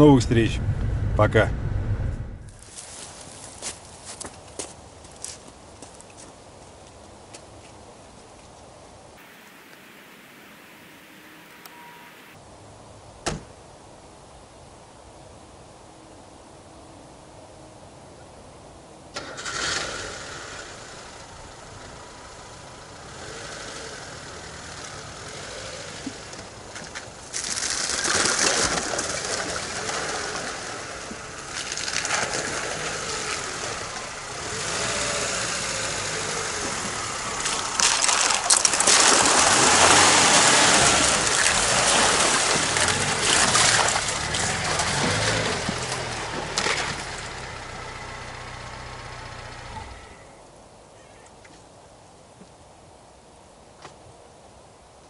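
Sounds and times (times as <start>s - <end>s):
car engine revving: 0.0s - 2.6s, 9.2s - 12.4s, 19.2s - 26.7s, 28.8s - 50.4s.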